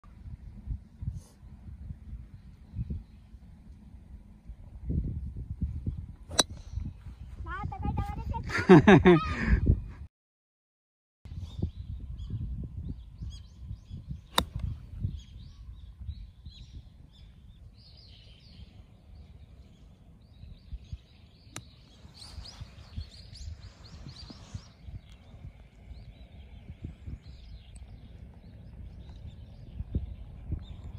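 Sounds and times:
wind on microphone: 0.1 - 10.1, 11.3 - 30.9
golf club striking ball: 6.3 - 6.8, 14.3 - 14.7
small birds chirping: 11.3 - 30.9.

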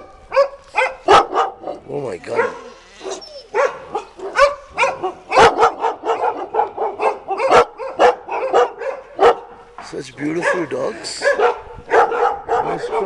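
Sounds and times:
dog barking rapidly: 0.0 - 9.6, 10.3 - 13.0.

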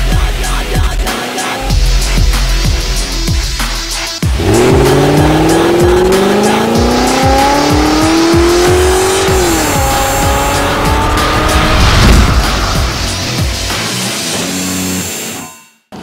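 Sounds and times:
electronic music with steady beat: 0.0 - 14.1
car engine revving: 1.8 - 14.1
tires squealing: 4.4 - 13.9.

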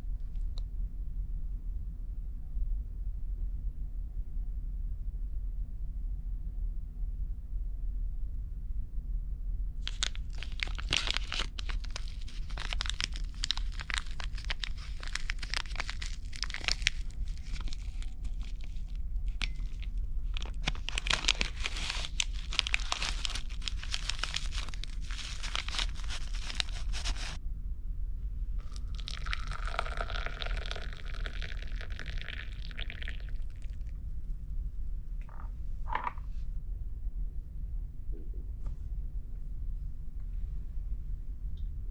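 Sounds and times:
low hum: 0.0 - 41.9
foil packet crinkling and tearing: 9.8 - 27.4, 28.8 - 33.2.

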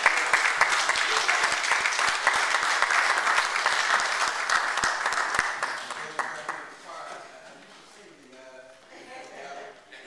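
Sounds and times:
crowd applauding: 0.0 - 6.8.

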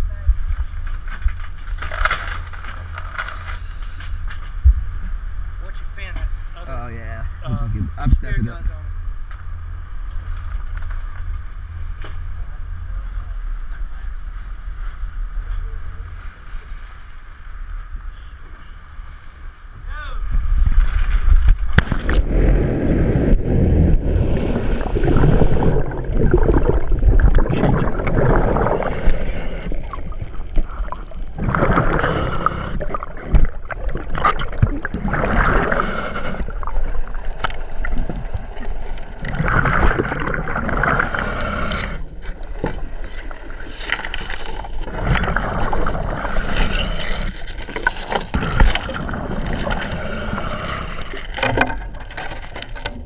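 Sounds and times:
water rushing and sloshing: 20.5 - 52.9
gurgling bubble bursts: 22.0 - 38.5, 39.1 - 42.0, 44.9 - 47.4.

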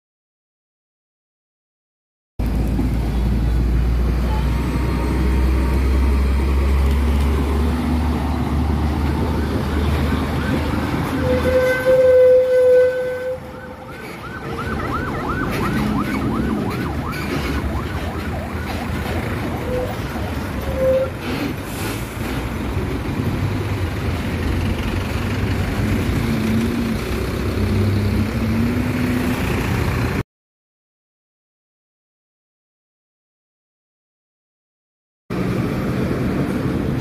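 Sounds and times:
diesel truck engine rumbling: 2.4 - 30.2
vehicle horn: 11.0 - 13.7
warbling siren yelps: 11.9 - 20.2.

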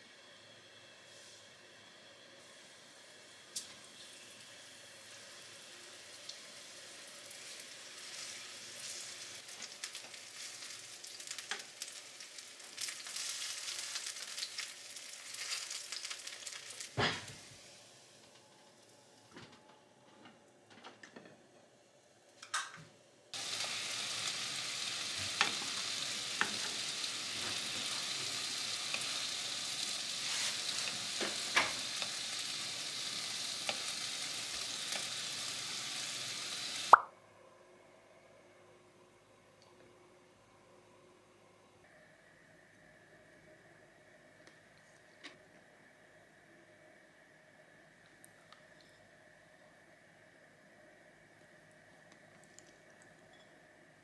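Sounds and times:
mushrooms sizzling in a frying pan: 2.4 - 18.2, 23.4 - 37.0.

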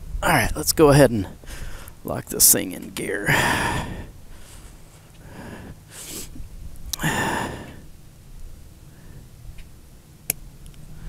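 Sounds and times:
man breathing out heavily: 1.4 - 2.0, 3.2 - 8.0.

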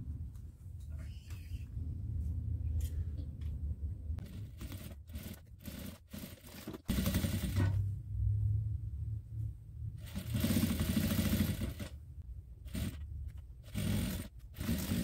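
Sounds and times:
sewing machine stitching: 4.2 - 7.8, 10.0 - 12.0, 12.7 - 15.0
low motor hum: 7.4 - 10.8.

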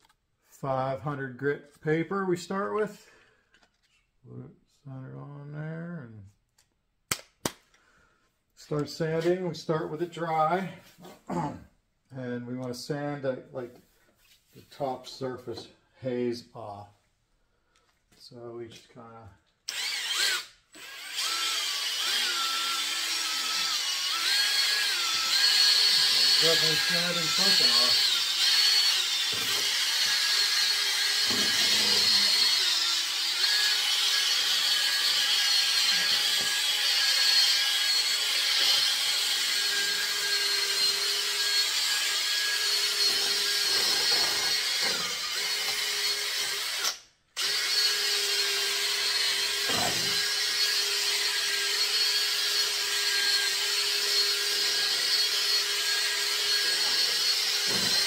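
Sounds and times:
cordless drill sanding plastic: 19.7 - 58.0.

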